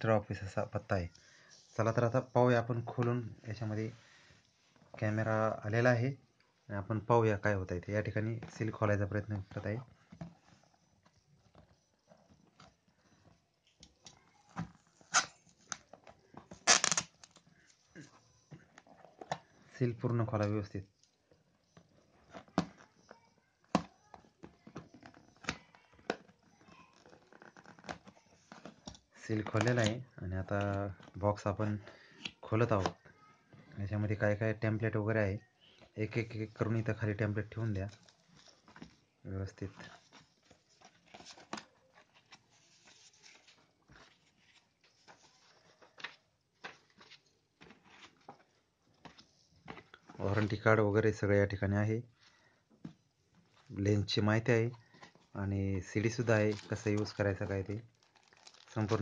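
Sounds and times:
paper rustling: 0:39.6 - 0:51.2, 0:54.6 - 0:59.0.

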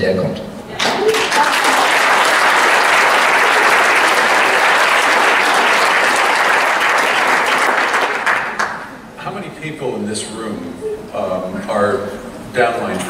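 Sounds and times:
audience applauding: 0:00.7 - 0:09.0.

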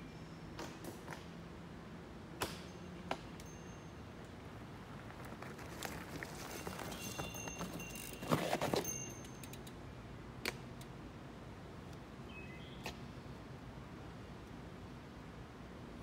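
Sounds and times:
mountain bike clattering over rocks: 0:05.0 - 0:09.6.

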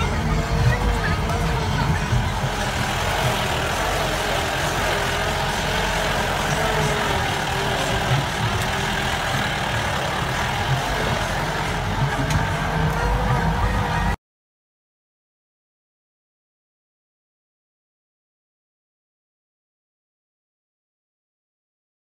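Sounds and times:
vehicle engine rumble with whine: 0:00.0 - 0:14.2.

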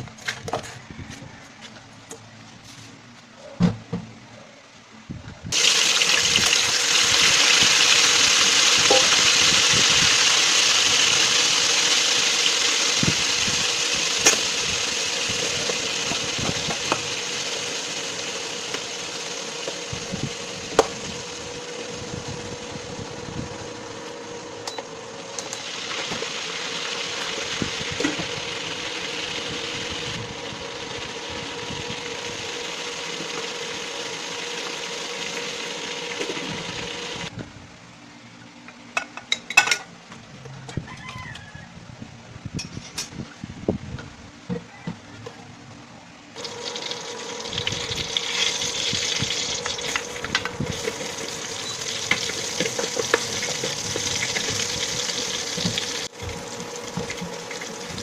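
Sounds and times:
steady hum: 0:04.0 - 0:38.5
water boiling hard: 0:05.5 - 0:23.8, 0:25.3 - 0:37.3, 0:46.4 - 0:58.0.

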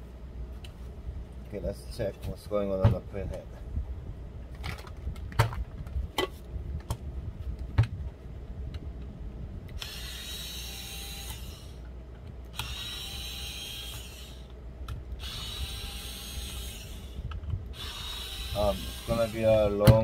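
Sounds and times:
small motor whirring: 0:09.7 - 0:11.9, 0:12.5 - 0:14.6, 0:15.2 - 0:20.0.

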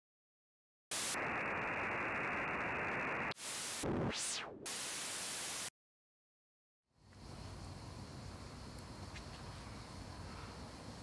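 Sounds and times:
tv static hiss: 0:00.9 - 0:05.7.

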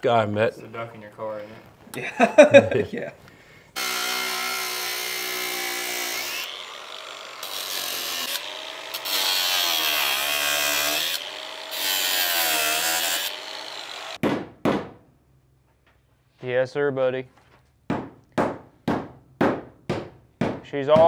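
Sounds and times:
angle grinder cutting steel: 0:03.8 - 0:14.2.

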